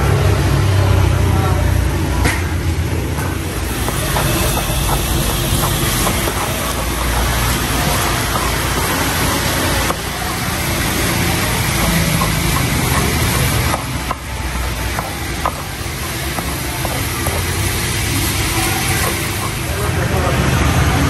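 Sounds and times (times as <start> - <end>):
loud steady background noise: 0.0 - 21.0
stone pestle crushing in mortar: 3.7 - 17.7.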